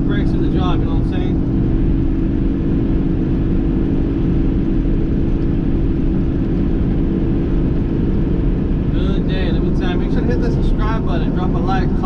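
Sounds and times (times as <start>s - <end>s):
road noise: 0.0s - 12.0s
truck diesel engine rumble: 0.0s - 12.0s.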